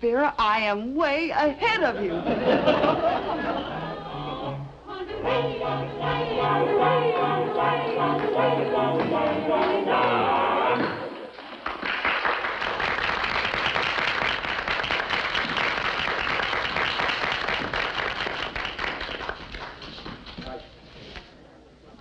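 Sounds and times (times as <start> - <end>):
crowd voices: 2.6 - 11.4
audience applauding: 7.8 - 20.3.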